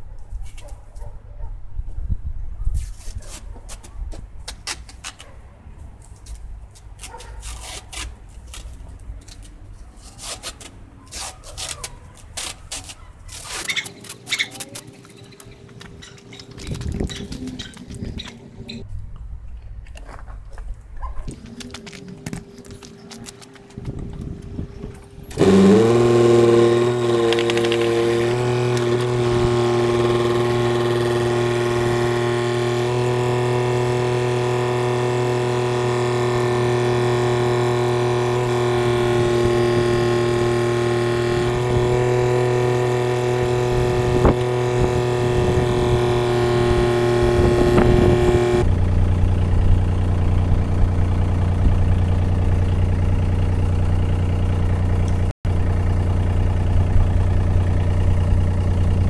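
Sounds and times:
diesel engine running: 21.3 - 59.0.

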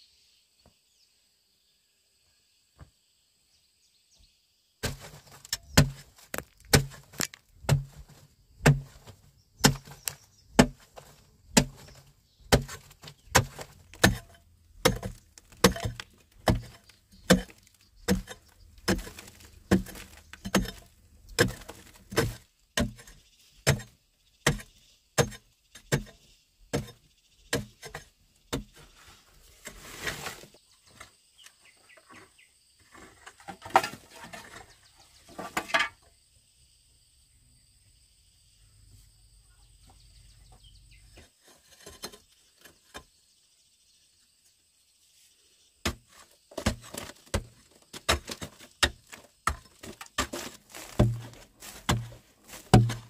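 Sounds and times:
pick striking compacted earth: 4.8 - 28.8, 45.8 - 53.0.

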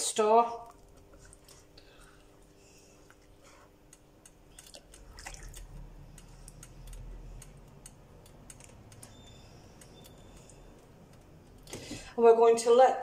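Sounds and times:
liquid sloshing in pot: 4.4 - 6.6.

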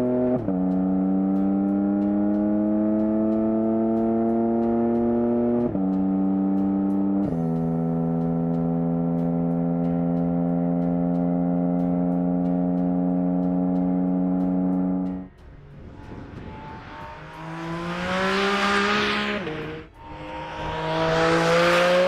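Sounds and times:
car engine accelerating: 0.0 - 22.0
gear upshifts: 11.1 - 22.0.

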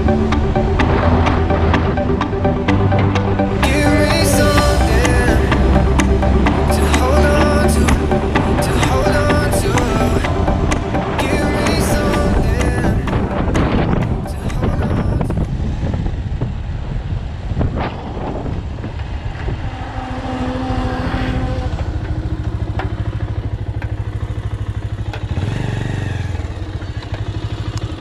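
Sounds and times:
motorcycle engine running: 19.4 - 28.0.

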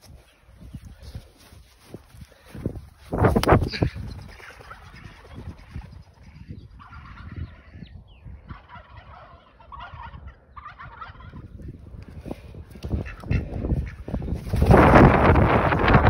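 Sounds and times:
wind rumble on microphone: 0.0 - 16.0
ducks calling: 3.4 - 14.6.

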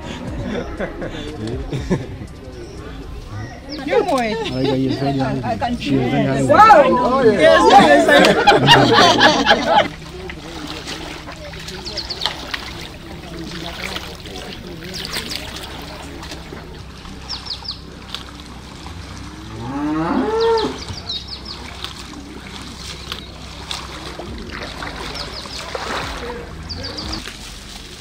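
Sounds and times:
cow mooing: 18.7 - 21.0.

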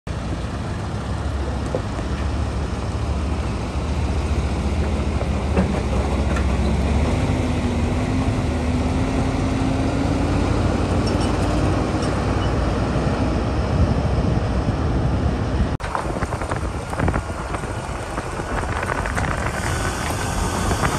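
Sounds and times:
heavy diesel engine rumbling: 0.1 - 20.9
faint rising whine: 15.8 - 20.9.

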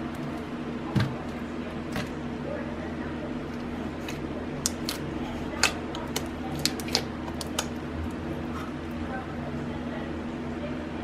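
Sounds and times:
steady low hum: 0.0 - 11.0
slime clicking and popping: 5.6 - 7.8.

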